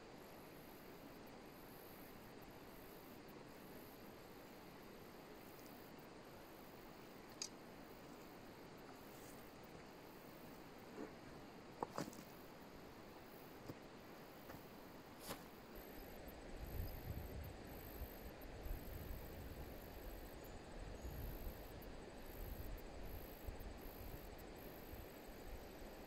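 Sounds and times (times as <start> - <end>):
wind rumble on microphone: 16.5 - 25.1.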